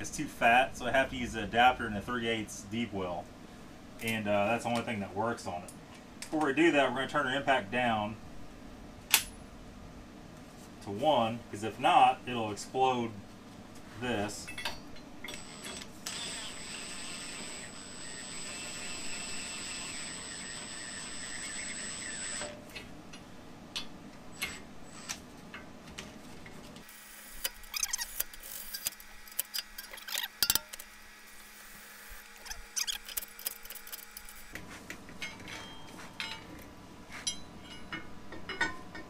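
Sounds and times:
impact wrench whining: 15.3 - 22.6, 26.9 - 31.0, 32.1 - 34.5
metal tools clinking: 37.2 - 39.0.

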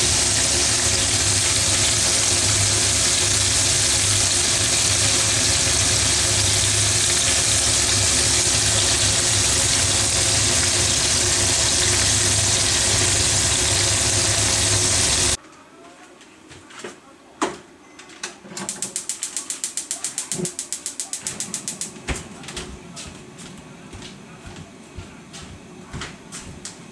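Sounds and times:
food deep-frying in oil: 0.0 - 15.4
gas stove igniter ticking: 18.7 - 21.9
sharp click: 18.7 - 21.9.

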